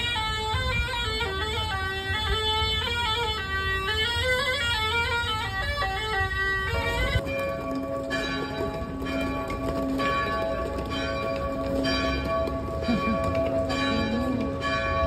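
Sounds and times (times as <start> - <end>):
low rumble of street noise: 0.0 - 15.0
church bells ringing: 6.8 - 15.0.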